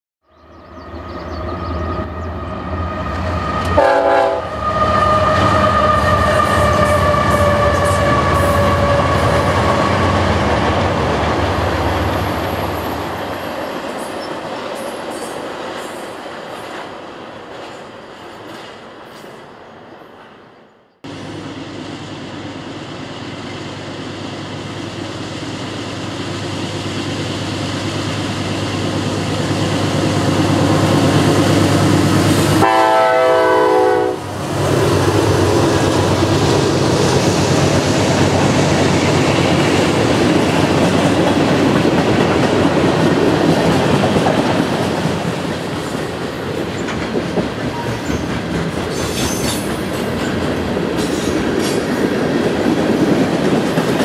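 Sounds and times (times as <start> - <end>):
diesel locomotives approaching: 0.3 - 54.0
locomotive horn: 2.6 - 10.3, 31.9 - 34.4.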